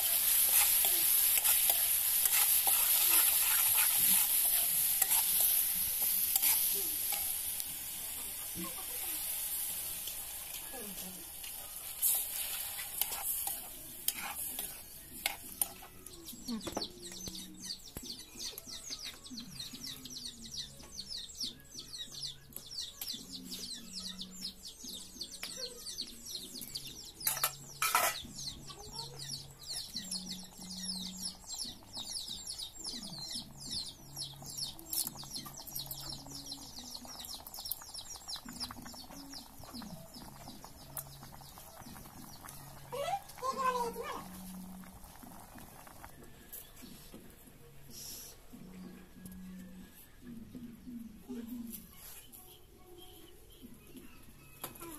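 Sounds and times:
gravy sizzling: 0:00.0 - 0:16.5, 0:26.3 - 0:47.3.

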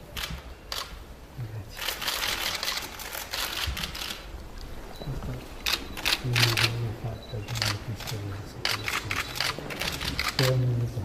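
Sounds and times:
camera shutters clicking: 0:00.2 - 0:01.0, 0:01.8 - 0:04.3, 0:05.6 - 0:06.8, 0:07.5 - 0:10.6.

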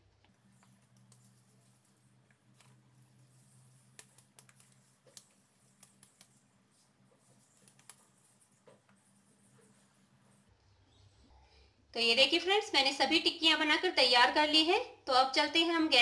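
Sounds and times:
hands shaping dough clicks: 0:03.8 - 0:06.4.

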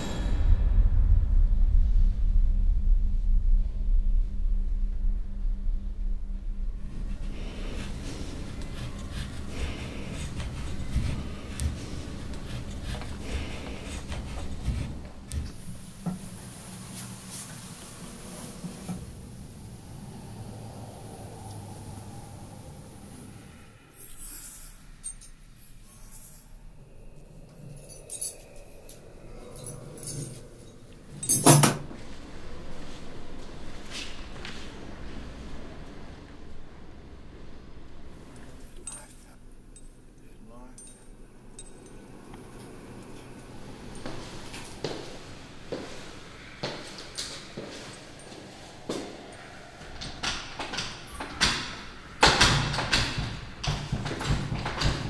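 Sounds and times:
low steady hum: 0:00.0 - 0:55.0
metal keys jangling: 0:31.2 - 0:31.8.

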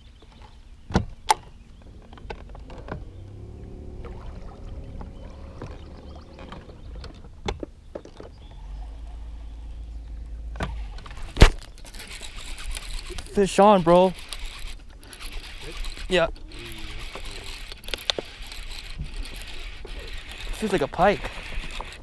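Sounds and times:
electric motor humming with whine: 0:11.9 - 0:22.0.

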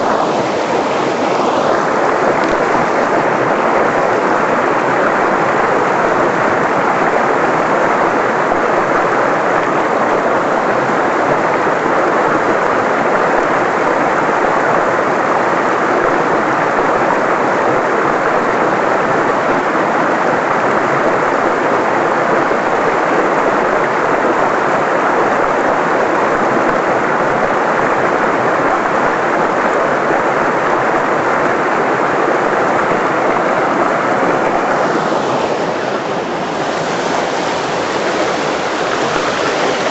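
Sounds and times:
steady rushing noise: 0:00.0 - 0:16.4, 0:30.6 - 0:39.9.

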